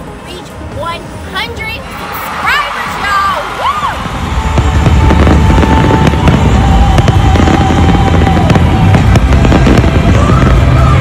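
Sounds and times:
music: 0:00.0 - 0:11.0
fireworks crackling and popping: 0:03.6 - 0:11.0
deep rumble: 0:03.9 - 0:11.0.

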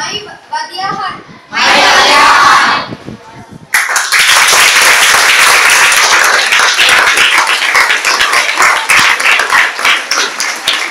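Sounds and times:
children clapping: 0:03.7 - 0:10.9.

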